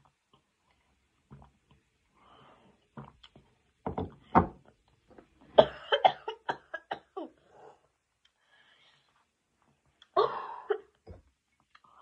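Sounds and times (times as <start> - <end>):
girl coughing into hand: 5.6 - 7.3.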